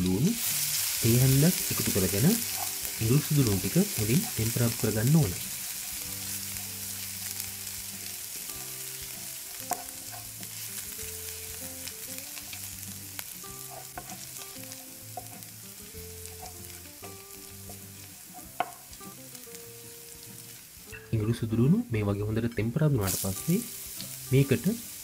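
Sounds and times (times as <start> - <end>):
garlic sizzling in hot oil: 0.0 - 21.9, 22.9 - 25.0
wooden spatula knocking on pan: 18.5 - 18.9.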